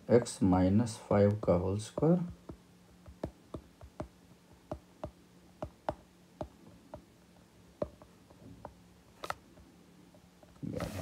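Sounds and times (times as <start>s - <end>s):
stylus tapping on glass screen: 1.9s - 7.1s, 7.8s - 8.8s.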